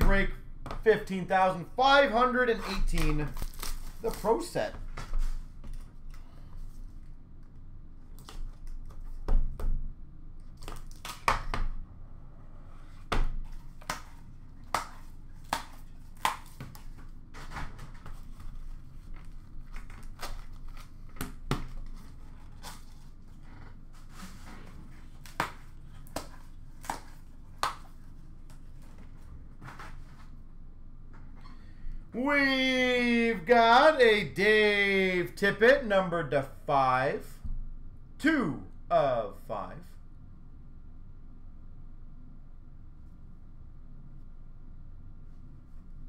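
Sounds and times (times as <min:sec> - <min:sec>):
cardboard and wrapping tearing: 0:02.8 - 0:04.6, 0:18.2 - 0:21.1, 0:21.7 - 0:24.2.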